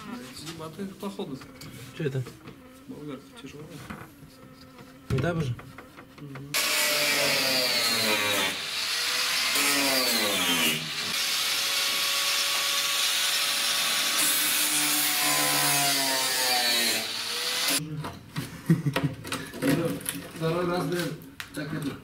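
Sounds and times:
angle grinder cutting metal: 0:06.6 - 0:17.8.

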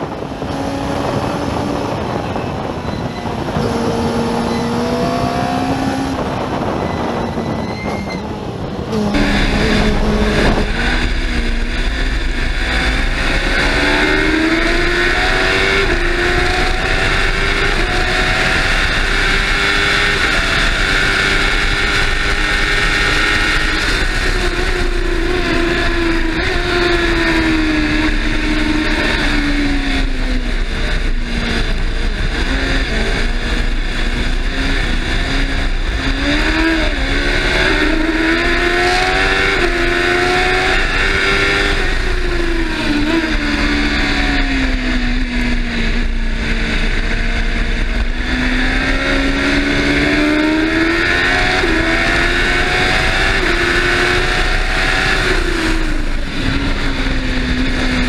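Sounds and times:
racing engine revving hard: 0:03.3 - 0:07.2, 0:08.8 - 0:58.0.

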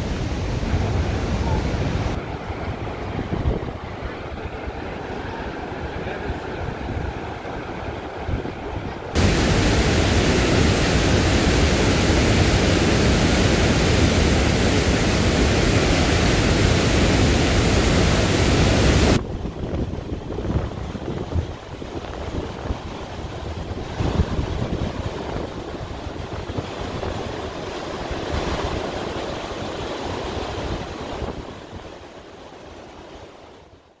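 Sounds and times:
waterfall roaring: 0:00.0 - 0:08.0, 0:09.0 - 0:19.2.

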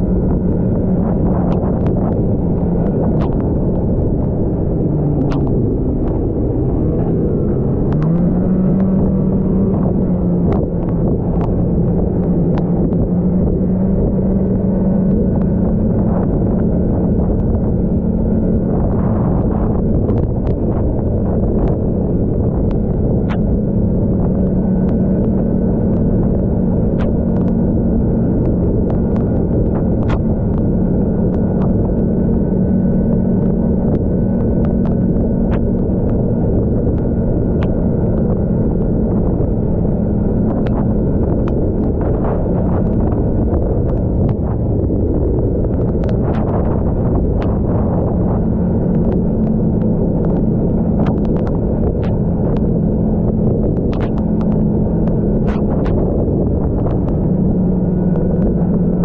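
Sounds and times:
snowmobile engine running: 0:00.0 - 0:59.0.

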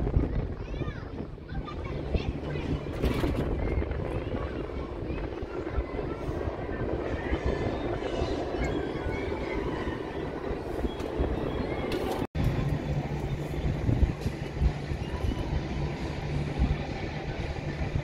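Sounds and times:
cable car rumble and clatter: 0:00.0 - 0:18.0.

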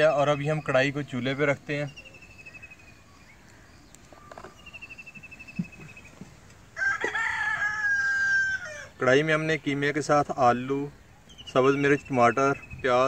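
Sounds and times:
rooster crowing: 0:06.7 - 0:09.0.

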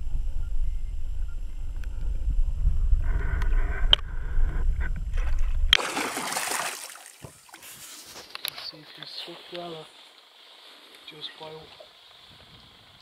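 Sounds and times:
fish splashing at surface: 0:05.8 - 0:07.7.

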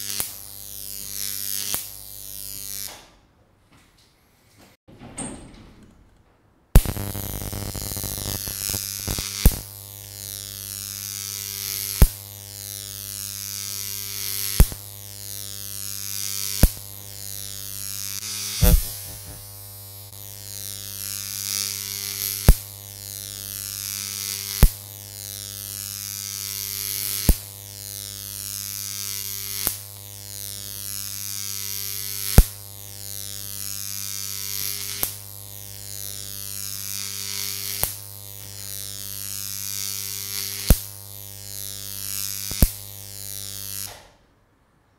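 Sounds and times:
electric arc buzzing: 0:00.0 - 0:03.2, 0:06.7 - 0:44.2
sharp arc snaps: 0:06.7 - 0:09.8, 0:18.6 - 0:19.8, 0:37.6 - 0:38.1, 0:40.3 - 0:41.0, 0:42.2 - 0:42.9.

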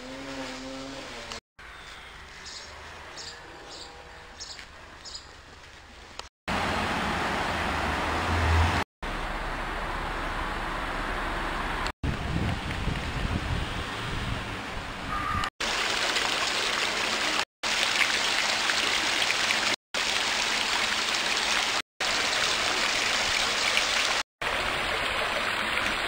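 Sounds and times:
water rushing down concrete channel: 0:15.6 - 0:26.0.

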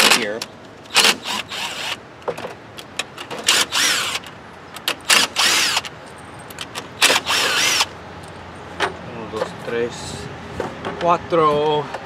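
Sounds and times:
power drill whirring: 0:00.9 - 0:02.0, 0:03.4 - 0:04.3, 0:05.0 - 0:05.9, 0:07.0 - 0:07.9.

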